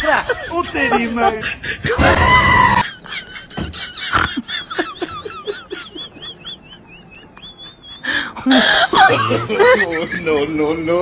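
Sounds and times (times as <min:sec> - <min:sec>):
person crying out: 0:02.0 - 0:02.8.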